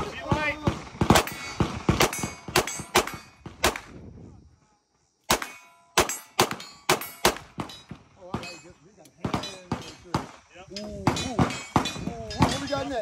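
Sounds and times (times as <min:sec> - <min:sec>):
pistol shots: 0:00.3 - 0:03.9, 0:05.3 - 0:07.8.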